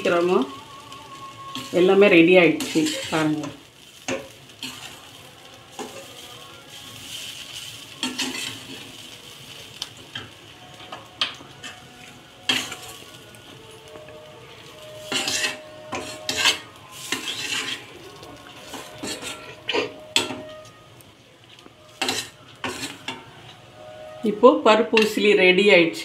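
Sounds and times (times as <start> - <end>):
food sizzling: 0.0 - 26.0
spoon scraping metal pan: 2.5 - 5.0, 8.0 - 8.8, 12.5 - 13.0, 15.0 - 20.8, 22.0 - 23.3.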